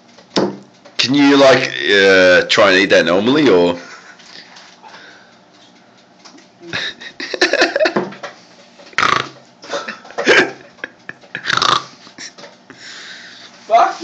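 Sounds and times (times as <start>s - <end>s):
person burping: 9.0s - 10.6s, 11.4s - 12.0s.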